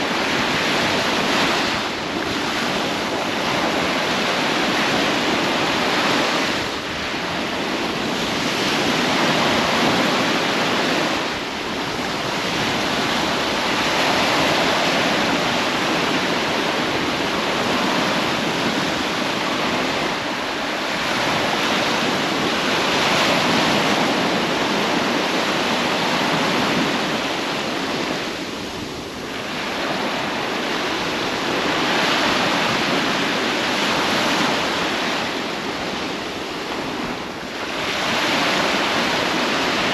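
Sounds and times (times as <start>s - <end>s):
sea waves washing onto beach: 0.0s - 39.9s.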